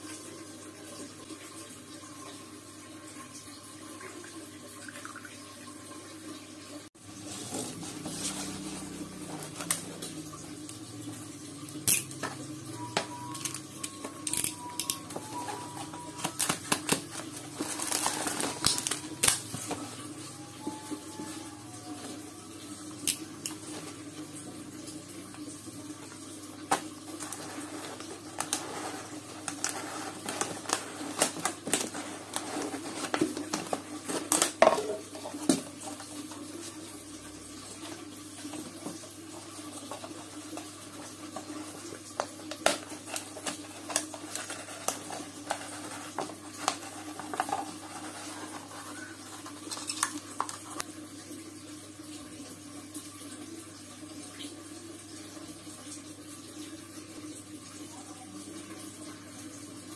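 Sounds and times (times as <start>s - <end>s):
thin plastic crinkling: 7.2s - 10.2s, 12.8s - 21.4s, 26.6s - 36.8s, 39.7s - 50.9s.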